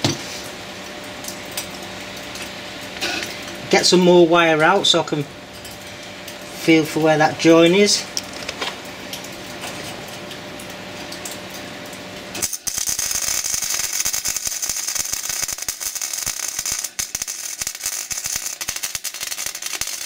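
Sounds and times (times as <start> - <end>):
welder crackling and hissing: 11.2 - 20.0.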